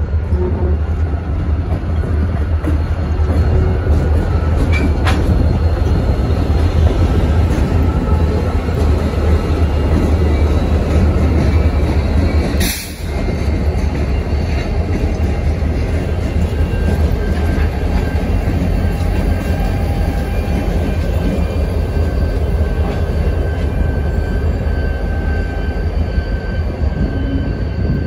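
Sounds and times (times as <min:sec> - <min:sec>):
diesel locomotive engines rumbling: 0:00.0 - 0:28.0
wheel and rail noise: 0:00.0 - 0:28.0.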